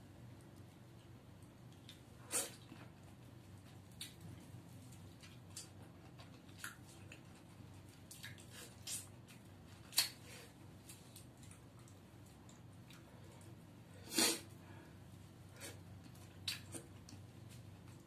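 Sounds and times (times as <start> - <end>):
sucking and chewing smacks: 5.2 - 10.2, 16.0 - 18.0.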